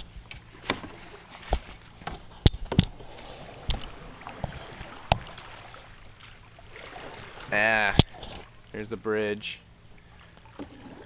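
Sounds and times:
water swishing around paddles: 0.0s - 11.0s
paddle knocking on canoe: 0.2s - 8.5s.

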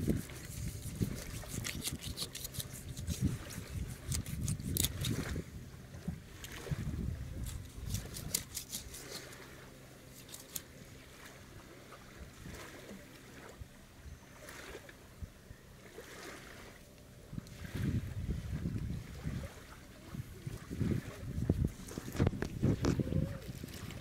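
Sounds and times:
knife scraping through carcass: 0.0s - 5.3s, 7.4s - 9.4s, 10.1s - 10.7s.

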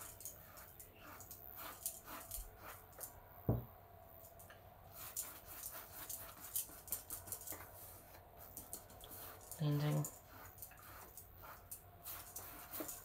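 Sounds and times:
brush swishing over lampshade: 0.0s - 3.2s, 4.9s - 13.0s
dull thump: 3.5s - 3.7s.

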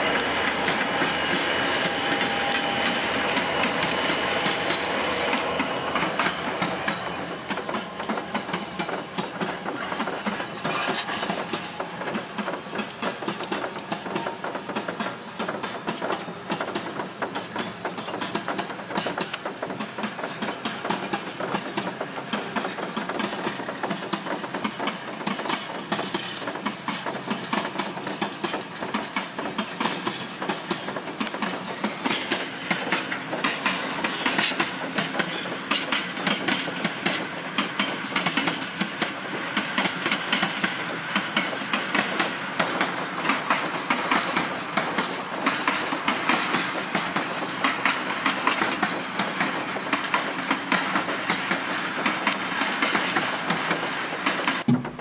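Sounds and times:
freight train wagons clattering: 0.0s - 55.0s.

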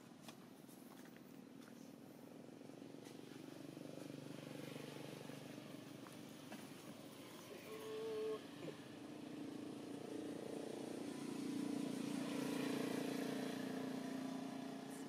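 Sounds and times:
motor engine droning: 2.4s - 15.0s.

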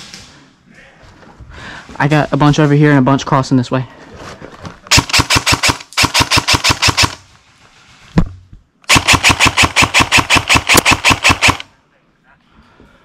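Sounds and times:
airsoft rifle firing bursts: 4.9s - 7.2s, 8.9s - 11.7s.

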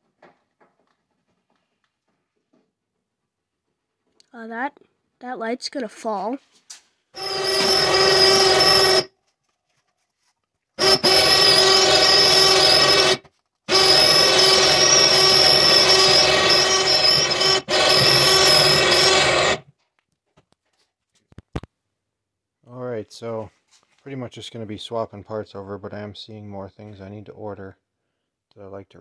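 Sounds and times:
electric hoist motor whining: 7.2s - 9.1s, 10.8s - 19.6s.

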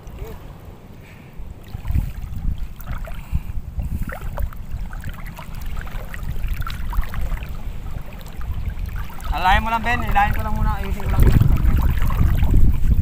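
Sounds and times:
water sloshing from wading: 0.0s - 13.0s
wind rumble on microphone: 0.0s - 13.0s.

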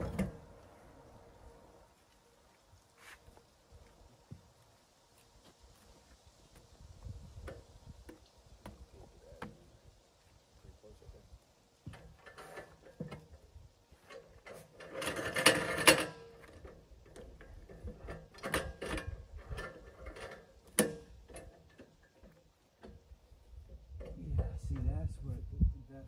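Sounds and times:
metal clicks and knocks: 14.0s - 23.1s.

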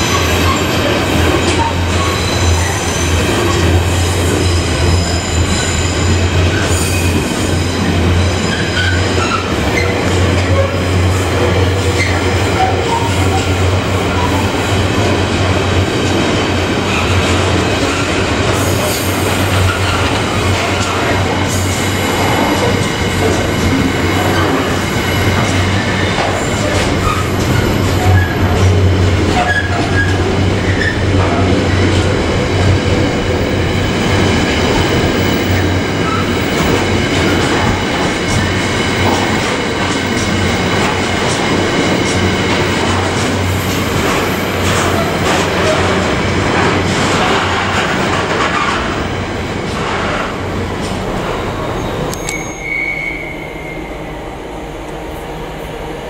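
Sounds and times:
high wheel squeal: 0.0s - 10.8s, 23.6s - 28.7s, 51.8s - 54.1s
freight train wagons rolling: 16.8s - 53.7s.

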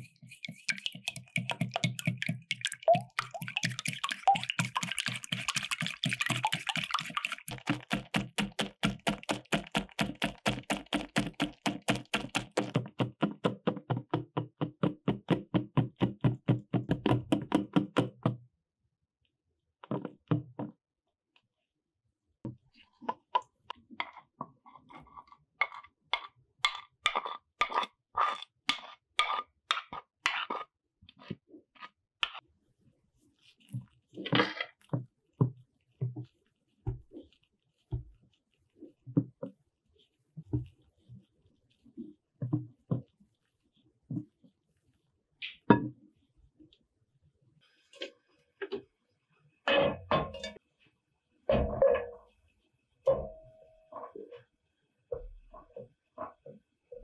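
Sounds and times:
whisk knocking against glass bowl: 0.0s - 13.0s.

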